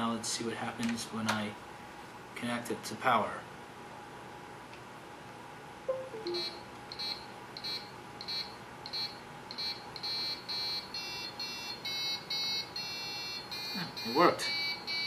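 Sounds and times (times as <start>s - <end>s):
high-pitched beeps playing a tune: 5.9s - 6.7s.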